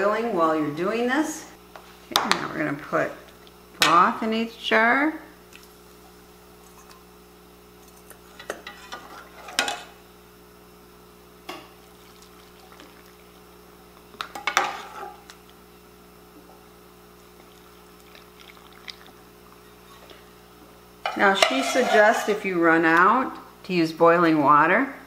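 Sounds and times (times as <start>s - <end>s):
faint steady hum: 0.0s - 25.0s
broth pouring into jars: 17.4s - 19.2s.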